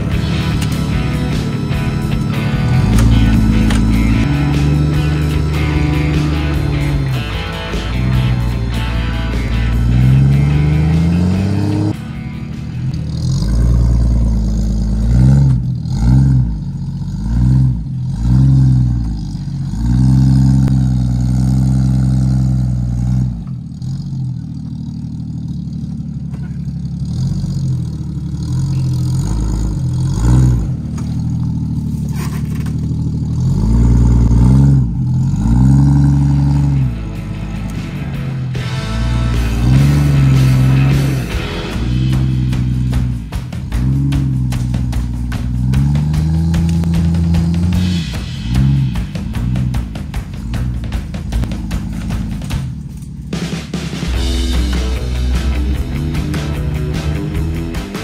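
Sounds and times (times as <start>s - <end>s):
engine revving in bursts: 0.0s - 58.0s.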